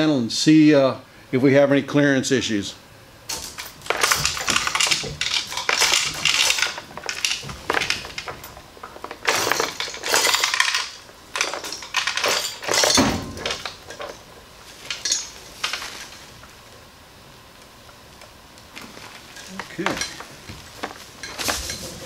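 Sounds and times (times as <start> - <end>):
heavy metal clank: 3.3 - 14.2
chains rattling and clinking: 3.3 - 16.3, 19.3 - 20.4, 21.2 - 22.0.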